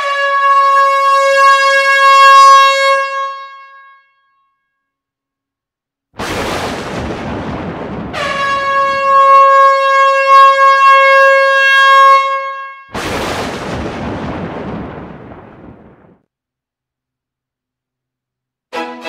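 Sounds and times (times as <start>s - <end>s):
train air horn: 0.0s - 4.1s, 8.2s - 12.9s.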